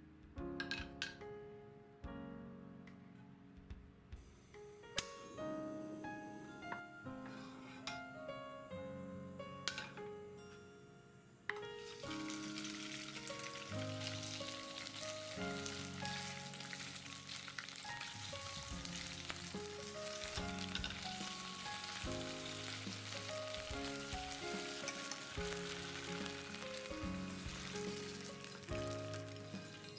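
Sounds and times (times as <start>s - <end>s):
background music: 0.0s - 29.9s
meat sizzling in hot oil: 11.8s - 29.9s.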